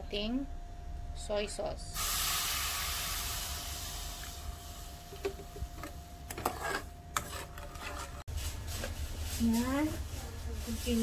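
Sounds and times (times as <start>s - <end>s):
sauce hissing in pan: 2.0s - 5.2s
metal spoon scraping pan: 6.3s - 8.2s.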